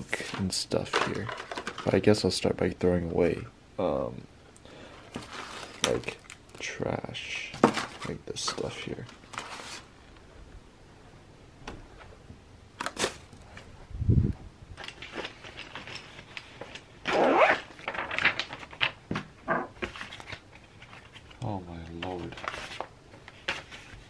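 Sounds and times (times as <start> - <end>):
paper sheets rustling: 5.1 - 6.1, 7.6 - 9.9, 17.6 - 19.0, 19.8 - 24.0.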